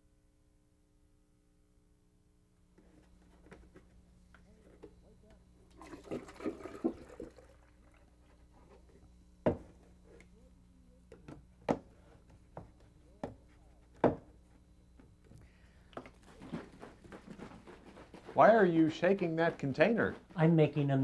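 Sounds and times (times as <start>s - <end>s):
containers knocking on countertop: 9.4s - 9.7s.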